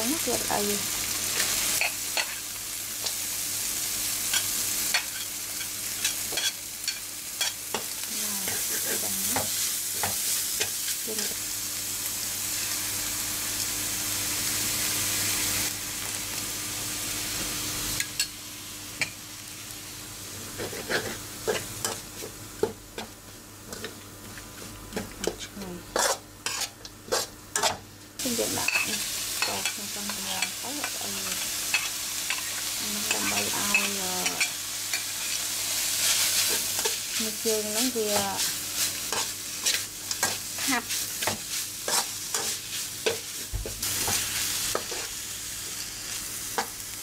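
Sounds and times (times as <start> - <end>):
food sizzling in a wok: 0.0 - 47.0
metal spatula scraping wok: 25.2 - 27.8.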